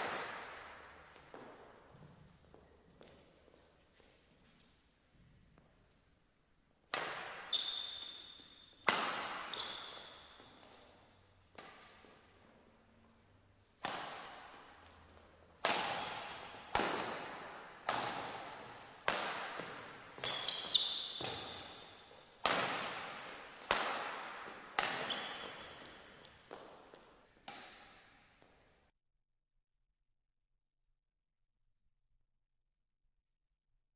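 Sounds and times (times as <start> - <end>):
rackets striking shuttlecock: 0.0 - 1.8, 6.9 - 12.4, 13.7 - 28.2
shoes squeaking on court: 0.0 - 4.8, 7.1 - 13.4, 14.1 - 28.6.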